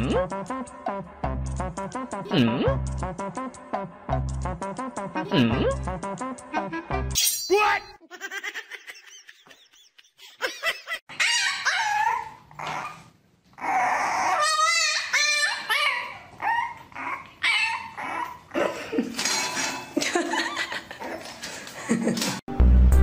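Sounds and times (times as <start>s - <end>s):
dog whining and yipping: 11.1s - 18.5s.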